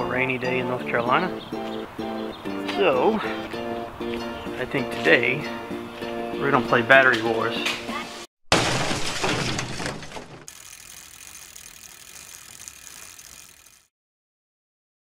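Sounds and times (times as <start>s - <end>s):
bicycle freehub ratcheting clicks: 10.5s - 13.9s.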